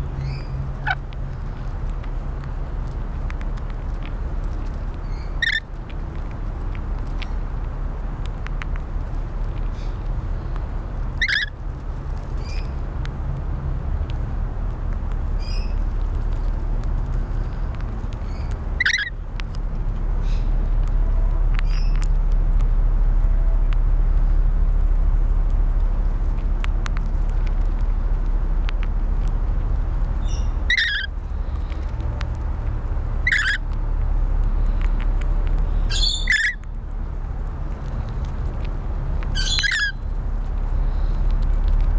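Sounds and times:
low rumble: 0.0s - 41.9s
lorikeets screeching: 5.1s - 5.6s, 11.2s - 11.5s, 18.3s - 19.1s, 30.2s - 31.1s, 33.2s - 33.6s, 35.8s - 36.6s, 39.4s - 40.0s.

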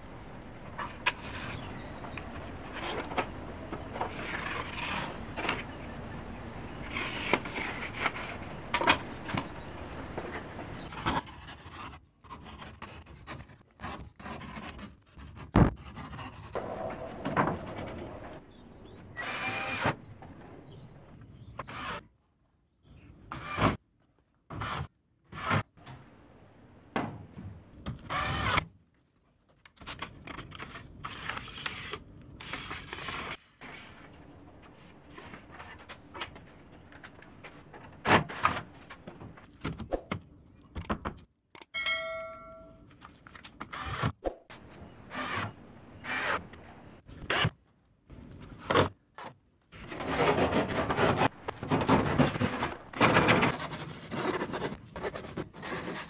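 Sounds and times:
scrapes and knocks: 49.8s - 56.0s.

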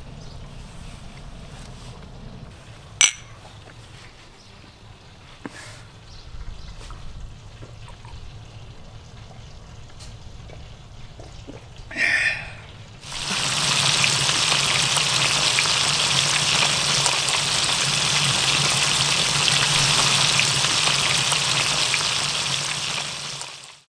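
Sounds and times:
fish frying in hot oil: 7.0s - 23.9s.

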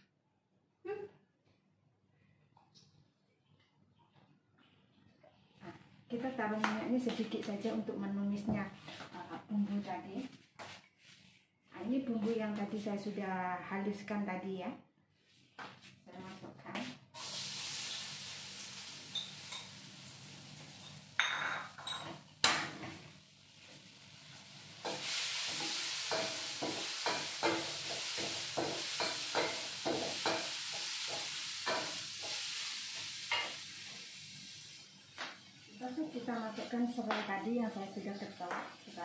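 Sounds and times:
spice paste sizzling in oil: 17.2s - 21.2s, 23.2s - 39.0s
spatula scraping wok: 23.6s - 33.9s.

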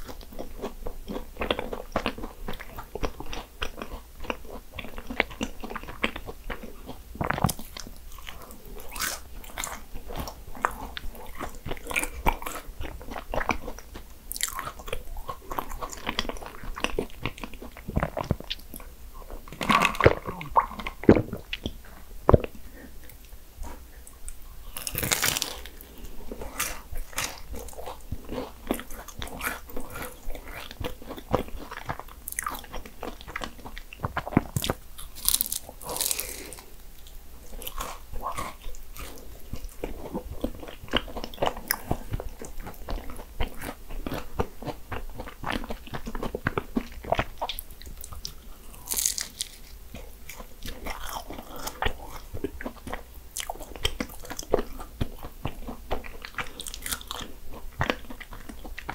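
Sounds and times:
chewing: 0.0s - 58.9s
crunching pastry bites: 24.7s - 25.9s, 26.5s - 36.7s, 37.6s - 58.6s.

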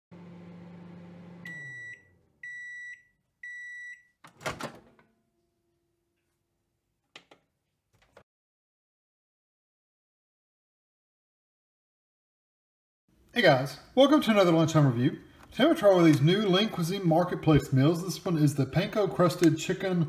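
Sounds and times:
microwave oven humming: 0.1s - 2.7s
microwave high beeps: 1.4s - 4.2s.

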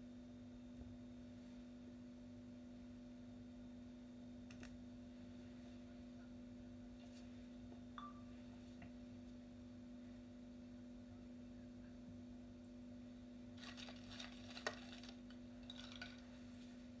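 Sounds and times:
quiet steady hum: 0.0s - 17.0s
small clicks and rustles: 13.6s - 16.3s.

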